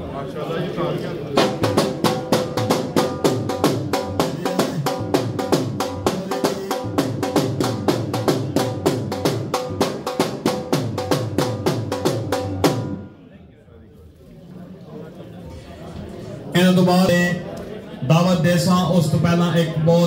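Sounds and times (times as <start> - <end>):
fast steady drumming: 1.4 - 13.0.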